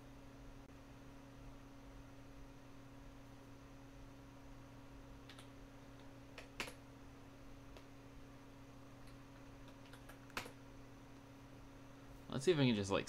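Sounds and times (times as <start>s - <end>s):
faint steady hum: 0.0s - 13.0s
keyboard keystrokes: 5.2s - 6.8s, 9.0s - 10.6s.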